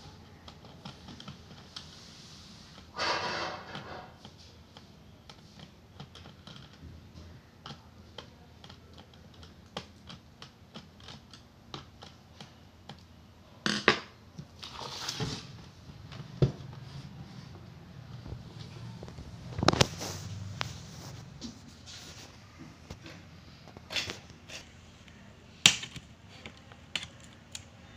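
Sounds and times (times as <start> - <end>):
laptop clattering and scraping: 2.7 - 6.9, 18.1 - 24.7.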